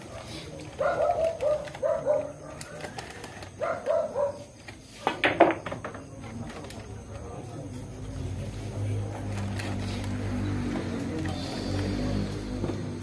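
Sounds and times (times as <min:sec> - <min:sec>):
pool balls clacking: 0:04.7 - 0:07.1.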